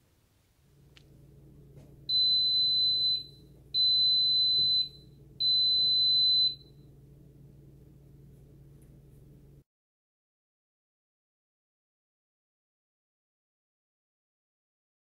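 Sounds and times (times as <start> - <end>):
pressure cooker beeping: 2.1 - 6.7.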